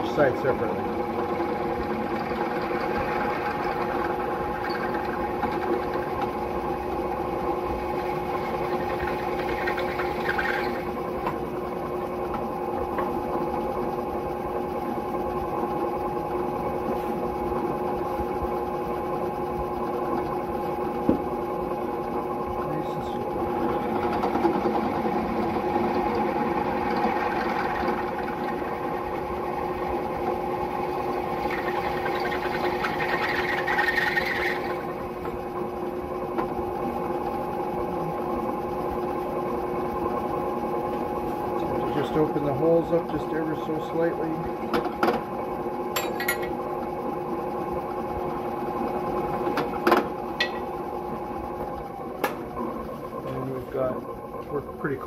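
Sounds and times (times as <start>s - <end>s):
drill press motor humming: 0.0s - 55.0s
drill bit cutting metal: 8.4s - 11.0s.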